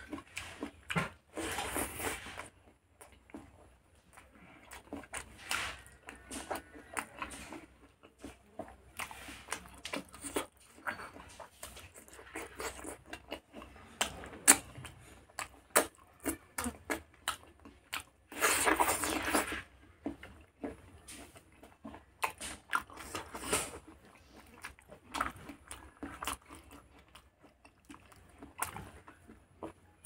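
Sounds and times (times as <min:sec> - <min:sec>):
biting and munching: 0:00.0 - 0:30.0
wet chewing: 0:00.0 - 0:30.0.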